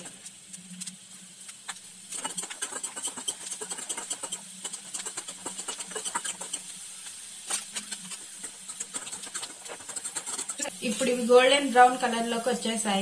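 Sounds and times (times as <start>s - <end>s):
nuts sizzling in hot oil: 0.0s - 13.0s
metal spatula scraping a pan: 1.7s - 11.2s.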